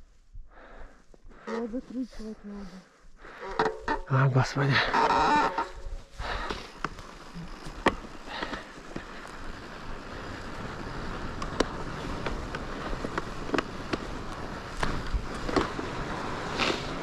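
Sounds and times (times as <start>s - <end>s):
wind rumbling on microphone: 4.7s - 17.0s.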